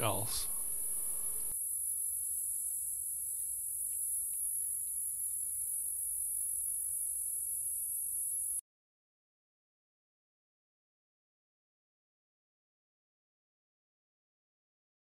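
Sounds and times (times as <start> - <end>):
high-pitched insect chorus: 0.1 - 8.6
faint ticks: 3.8 - 4.6.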